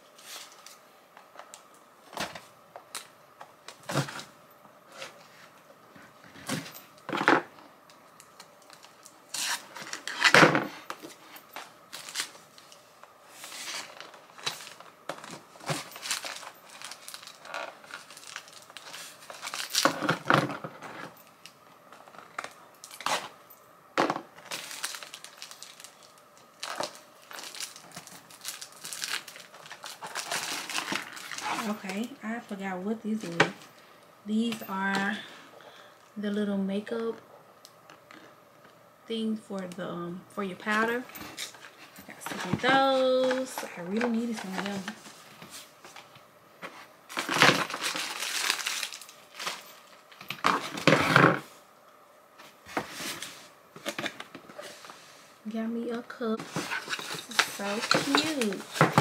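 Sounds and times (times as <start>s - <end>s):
plastic wrapping rustling: 0.0s - 23.5s, 24.2s - 35.2s, 40.6s - 51.6s, 52.4s - 55.3s, 56.0s - 59.0s
box tearing and crinkling: 13.4s - 20.5s, 24.4s - 31.9s, 47.1s - 49.6s.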